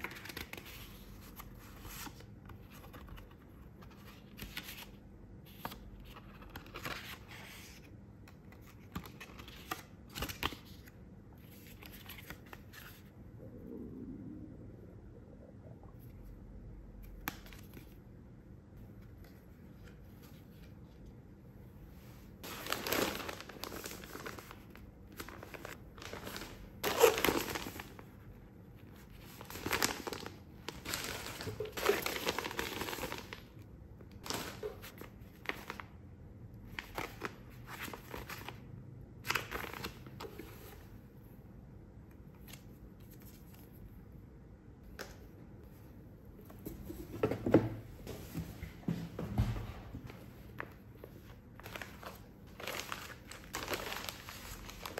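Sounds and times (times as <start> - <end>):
plastic bags rustling and crinkling: 22.4 - 28.1, 29.2 - 33.5, 50.5 - 54.9.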